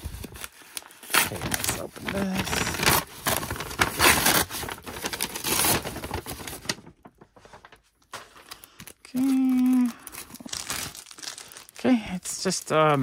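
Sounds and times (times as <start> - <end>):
paper envelope rustling: 0.0 - 13.0
plastic wrapping crinkling: 0.0 - 13.0.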